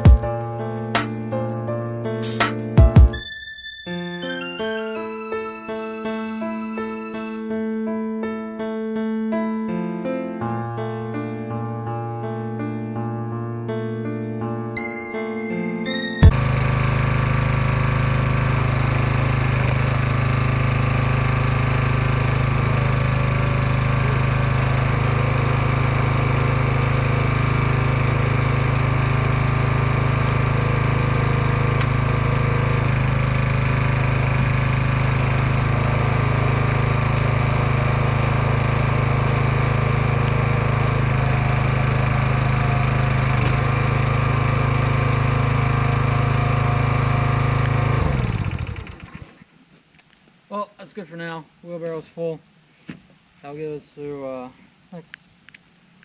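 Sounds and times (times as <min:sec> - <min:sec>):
small gasoline engine running: 0:16.2 - 0:49.4.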